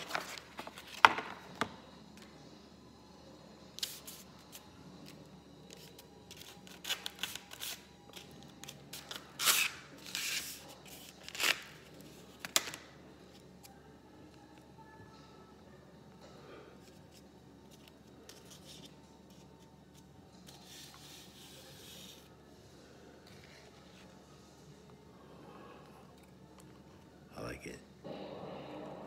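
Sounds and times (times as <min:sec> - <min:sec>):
paper and cardboard rustling: 0:00.0 - 0:01.3.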